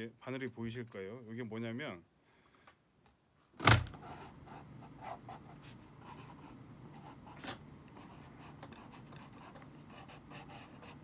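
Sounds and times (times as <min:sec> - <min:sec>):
pencil scratching on paper: 0:03.9 - 0:11.0.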